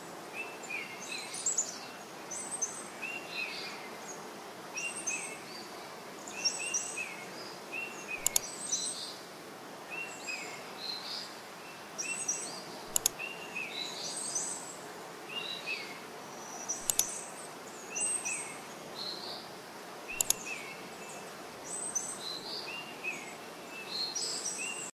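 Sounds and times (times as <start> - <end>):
outdoor hiss: 0.0 - 24.9
birds chirping: 7.8 - 9.1, 10.0 - 14.6, 15.3 - 19.5, 20.1 - 24.9
sharp clicks: 8.2 - 8.5, 12.9 - 13.2, 16.8 - 17.1, 20.1 - 20.5.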